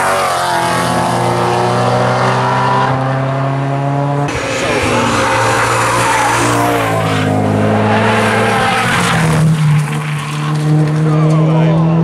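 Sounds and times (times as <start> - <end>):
sports car engines revving: 0.0 - 12.0
tyres skidding and squealing: 4.3 - 12.0.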